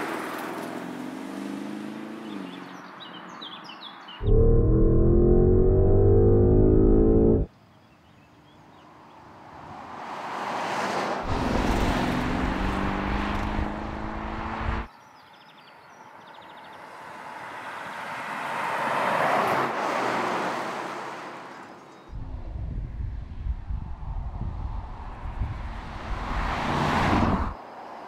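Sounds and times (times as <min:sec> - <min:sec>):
tyre and road noise: 0:04.2 - 0:07.5, 0:09.3 - 0:14.9, 0:22.1 - 0:28.0
car passing by: 0:09.5 - 0:14.9, 0:16.9 - 0:21.6, 0:24.4 - 0:28.0.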